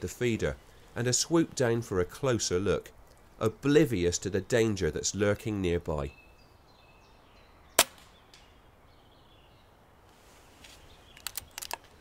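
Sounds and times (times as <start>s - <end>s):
air rifle shot: 7.8s - 8.5s.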